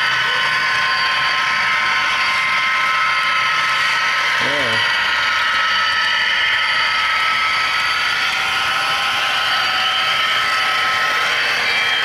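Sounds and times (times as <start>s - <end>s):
model train whirring: 0.0s - 12.0s.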